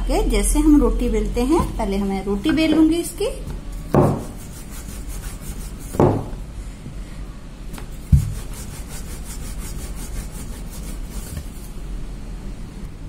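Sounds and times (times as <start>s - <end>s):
rolling pin rolling dough: 1.4s - 6.4s, 7.7s - 11.8s
knocks: 4.0s - 4.3s, 6.0s - 6.4s.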